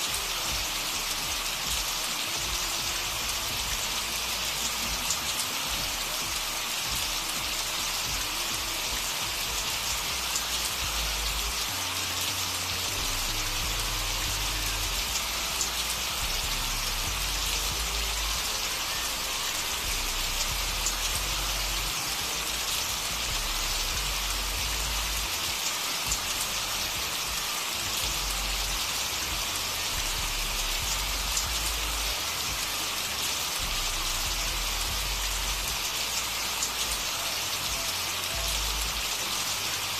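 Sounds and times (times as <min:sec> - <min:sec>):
steady rain hiss: 0:00.0 - 0:39.9
low hum shifting pitch: 0:00.2 - 0:25.4.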